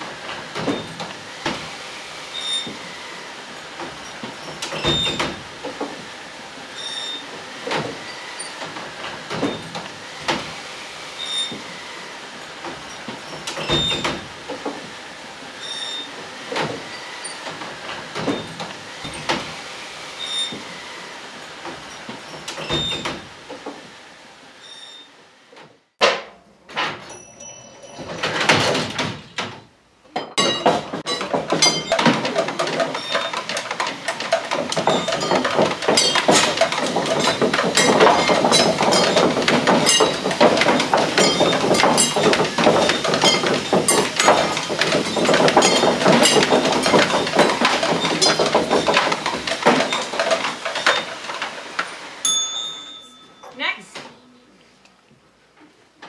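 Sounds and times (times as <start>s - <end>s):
objects clattering and rattling: 26.0s - 54.2s
bangs: 30.4s - 51.5s.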